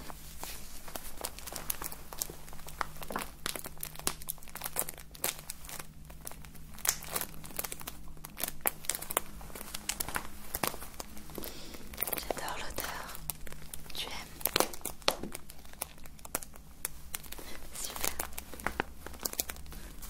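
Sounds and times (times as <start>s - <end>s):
crinkling in hands: 0.0s - 20.0s.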